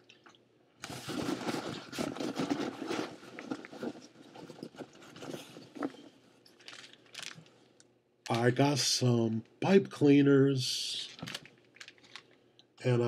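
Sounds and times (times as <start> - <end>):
packaging rustling and crinkling: 0.8 - 7.5, 11.0 - 12.4.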